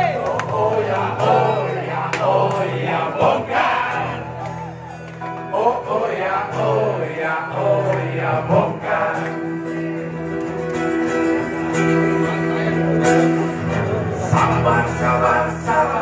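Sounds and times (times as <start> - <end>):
live band with guitar: 0.0 - 16.0
person singing: 5.4 - 16.0.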